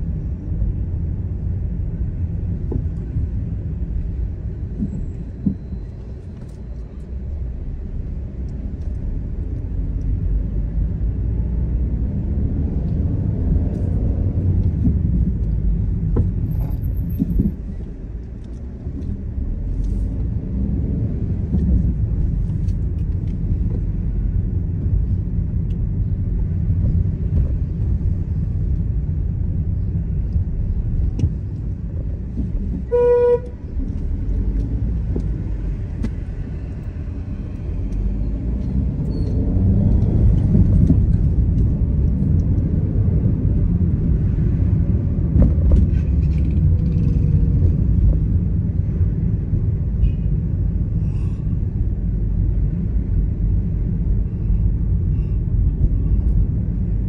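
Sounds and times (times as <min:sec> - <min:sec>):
car engine and road rumble: 0:00.0 - 0:57.0
car horn beep: 0:32.9 - 0:33.6.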